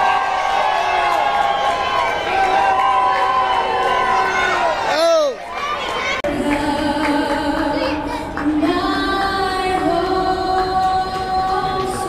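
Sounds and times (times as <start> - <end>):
person singing over loudspeakers: 6.2 - 12.0.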